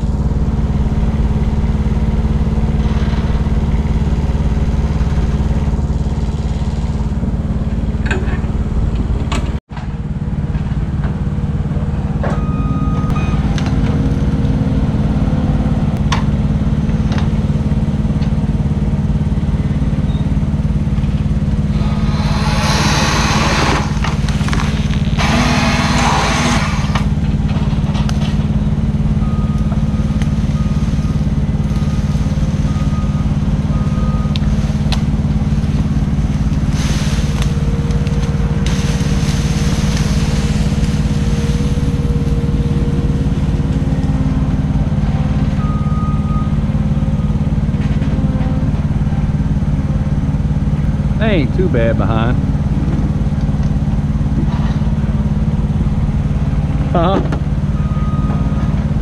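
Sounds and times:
machine engine running: 0.0 - 59.0
saw rasping through wood: 21.7 - 24.2, 25.2 - 27.1.

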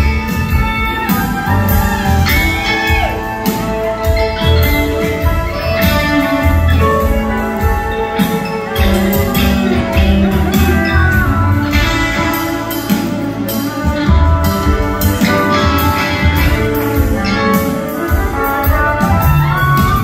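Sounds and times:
drums steady beat: 0.0 - 20.0
live band playing: 0.0 - 20.0.

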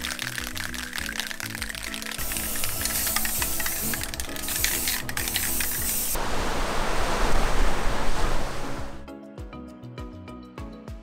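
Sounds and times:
background music: 0.0 - 6.2, 9.0 - 11.0
spray-paint cans hissing: 0.0 - 6.2.

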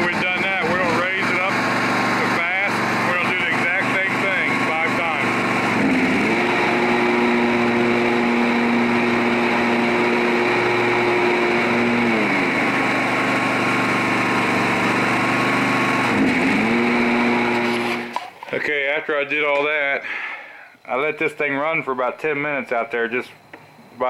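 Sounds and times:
mower engine running: 0.0 - 18.4.

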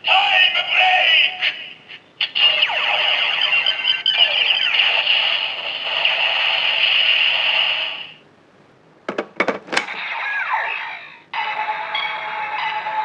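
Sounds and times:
toy electronic music: 2.3 - 5.2.

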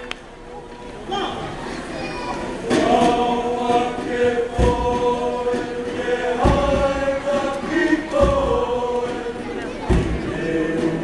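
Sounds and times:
boys singing together: 2.6 - 11.0
deep thud: 6.4 - 7.0, 9.8 - 10.4.

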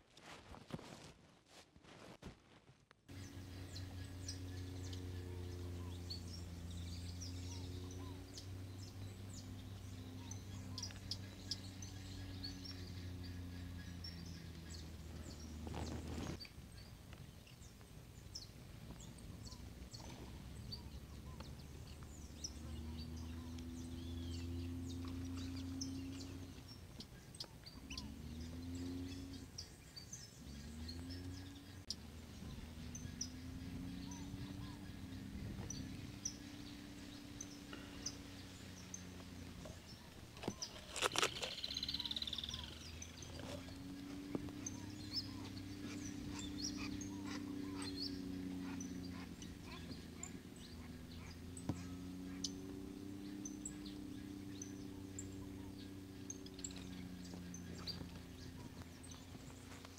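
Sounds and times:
small birds chirping: 3.1 - 59.9
low drone: 18.4 - 59.9.

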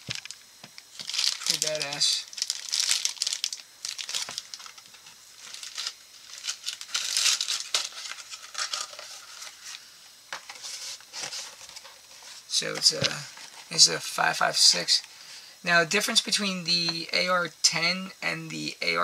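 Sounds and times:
packaging crinkling: 0.0 - 9.8.

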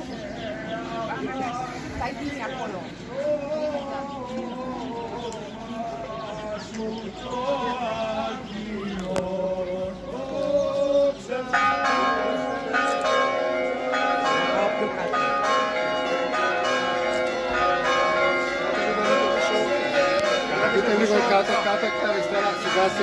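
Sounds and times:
church bells ringing: 11.3 - 23.0.

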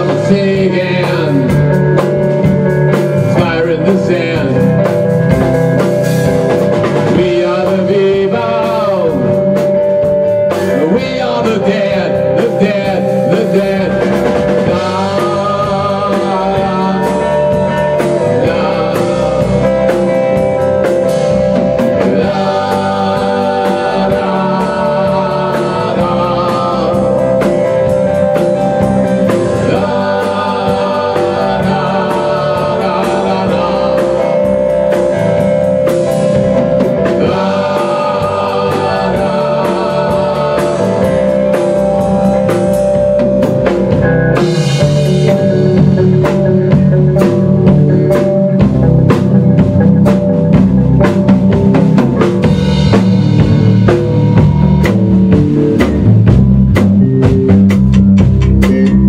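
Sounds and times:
drum kit: 0.0 - 59.0
electric bass: 0.0 - 59.0
electric guitar: 0.0 - 59.0.

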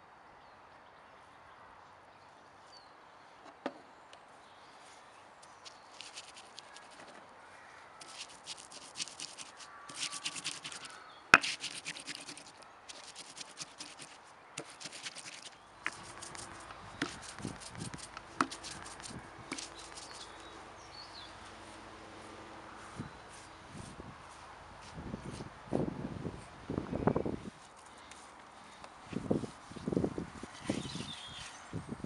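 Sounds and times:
stone pestle grinding seeds: 8.0 - 20.4.

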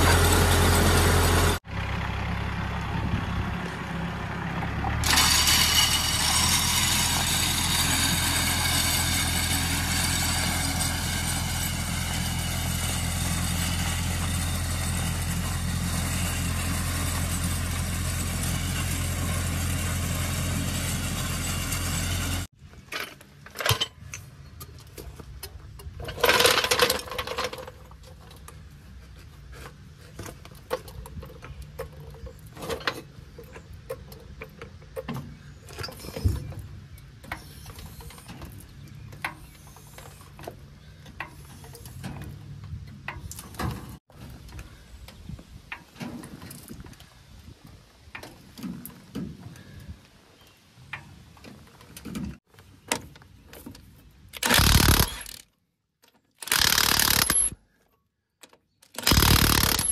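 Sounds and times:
tractor engine running: 0.0 - 22.5, 54.4 - 55.4, 56.4 - 57.6, 58.9 - 59.9.

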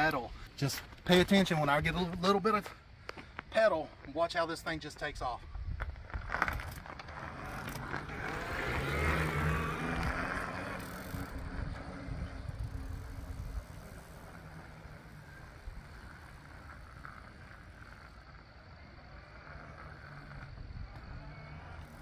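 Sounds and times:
electric bike motor whirring: 6.0 - 22.0.

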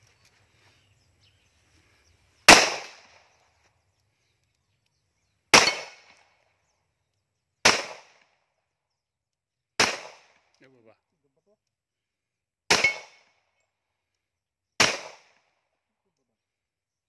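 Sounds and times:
pistol shots with echo: 2.5 - 3.2, 5.5 - 6.2, 7.6 - 8.2, 9.8 - 10.4, 12.7 - 13.3, 14.8 - 15.4.

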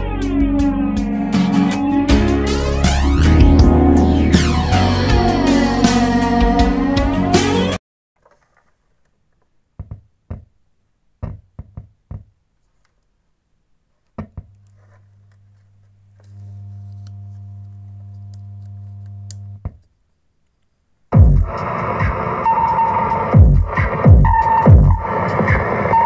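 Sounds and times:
low buzzing mains hum: 15.9 - 19.7.

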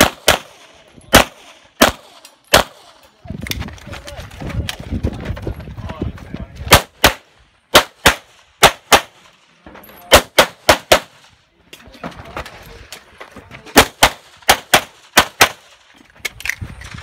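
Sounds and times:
pistol shots in pairs: 0.0 - 3.0, 6.7 - 9.3, 10.1 - 11.2, 13.7 - 15.8.

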